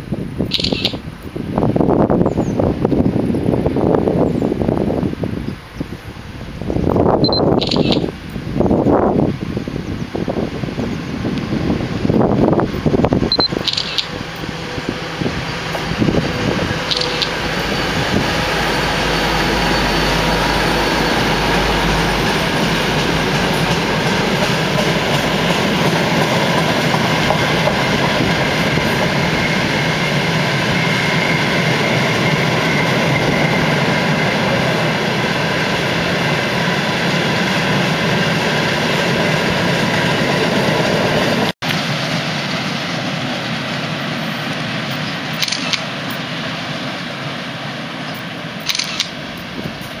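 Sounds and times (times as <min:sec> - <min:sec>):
diesel locomotive engine rumble: 0:00.0 - 0:50.0.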